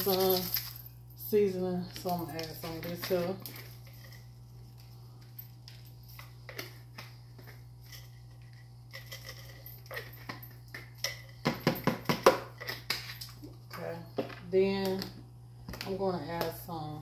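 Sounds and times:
seasoning shaker rattling: 0:00.0 - 0:00.9
steady low hum: 0:00.0 - 0:17.0.

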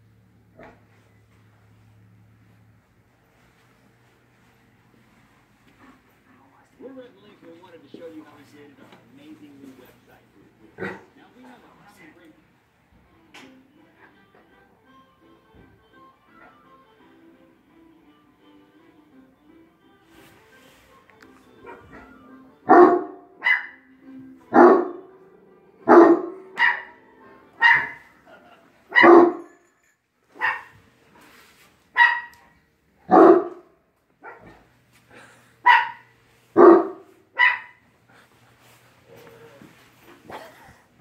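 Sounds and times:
large dog barking deeply: 0:22.7 - 0:23.7, 0:24.5 - 0:25.0, 0:25.9 - 0:27.0, 0:28.9 - 0:29.5, 0:33.1 - 0:34.5, 0:36.6 - 0:37.7
small dog barking sharply: 0:22.7 - 0:23.8, 0:25.9 - 0:26.9, 0:27.6 - 0:28.0, 0:28.9 - 0:29.5, 0:30.4 - 0:30.7, 0:32.0 - 0:32.4, 0:33.1 - 0:34.6, 0:35.6 - 0:37.8.

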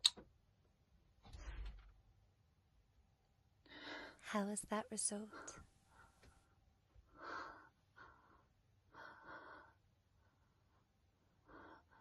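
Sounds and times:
woman breathing quietly: 0:03.6 - 0:04.3, 0:05.3 - 0:12.0.

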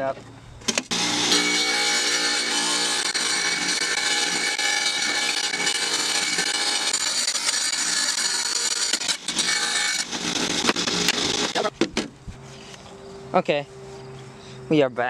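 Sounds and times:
tile saw grinding through glass: 0:00.9 - 0:11.7.

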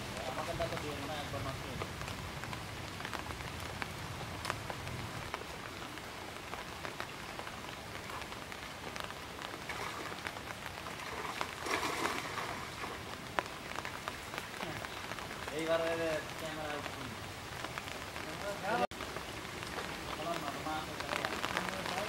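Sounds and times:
rain falling on water: 0:00.0 - 0:22.0
water splashing: 0:09.2 - 0:22.0.

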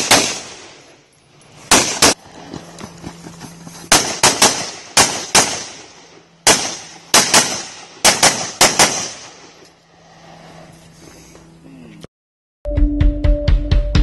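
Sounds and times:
rifle shots echoing: 0:00.0 - 0:00.9, 0:01.7 - 0:02.2, 0:03.9 - 0:09.6.

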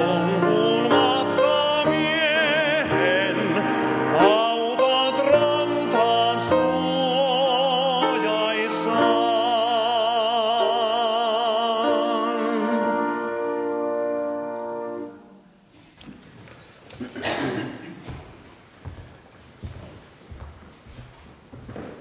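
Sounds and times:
man singing with vibrato: 0:00.0 - 0:15.4.

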